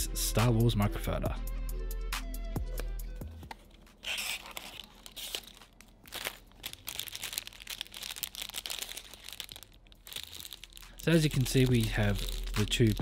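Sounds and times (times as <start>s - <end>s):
plastic bags crinkling: 3.6s - 13.0s.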